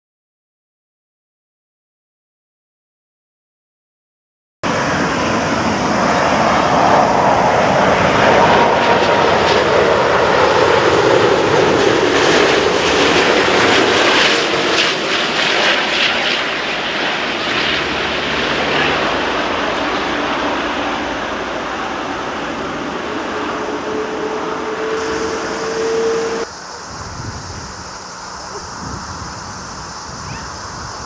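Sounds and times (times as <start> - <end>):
jet airliner roar: 4.6 - 31.0.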